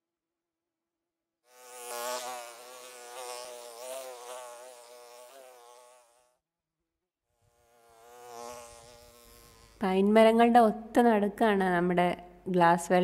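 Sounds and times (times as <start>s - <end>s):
small motors buzzing: 1.5s - 6.4s, 7.3s - 10.0s.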